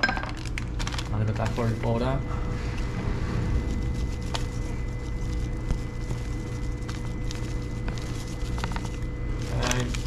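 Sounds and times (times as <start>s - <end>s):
steady low hum: 0.0s - 10.0s
thin constant whine: 0.0s - 10.0s.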